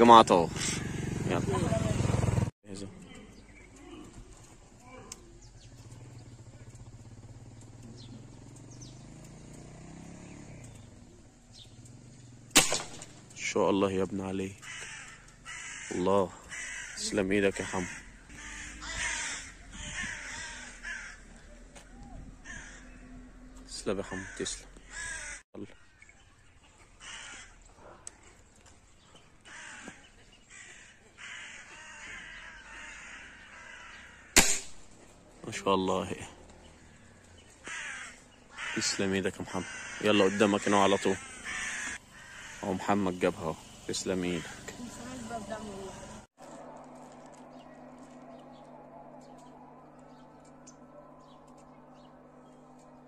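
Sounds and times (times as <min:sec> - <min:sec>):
crows cawing: 0:00.0 - 0:02.4, 0:03.0 - 0:07.9, 0:14.0 - 0:35.2, 0:35.8 - 0:53.0
high falling bird chirps: 0:02.8 - 0:13.4, 0:24.8 - 0:35.1.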